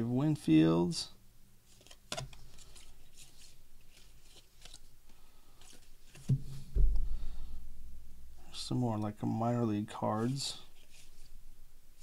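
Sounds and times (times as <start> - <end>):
cards rustling in hands: 1.7 - 6.6, 10.2 - 11.4
low thump: 6.3 - 7.3.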